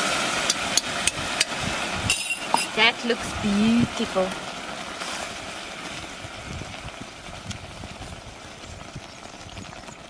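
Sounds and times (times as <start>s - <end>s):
stew simmering in a pot: 0.0s - 10.0s.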